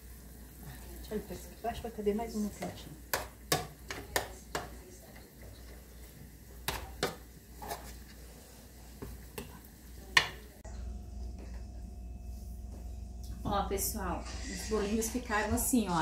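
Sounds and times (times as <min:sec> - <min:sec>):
faint frying in oil: 0:00.0 - 0:10.7.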